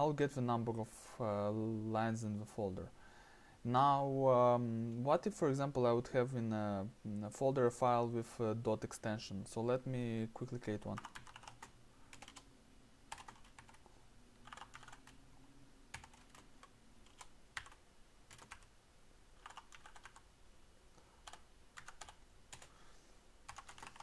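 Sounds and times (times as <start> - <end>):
keyboard typing: 10.8 - 12.5, 13.1 - 15.2, 15.9 - 18.7, 19.4 - 20.3, 21.2 - 22.7, 23.5 - 24.0.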